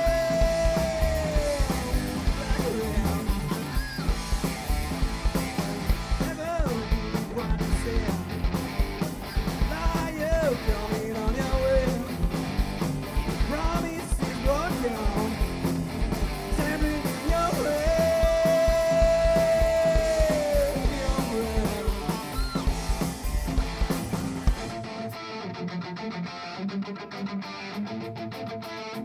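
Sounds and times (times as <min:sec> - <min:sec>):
heavy metal band playing live: 0:00.0 - 0:29.0.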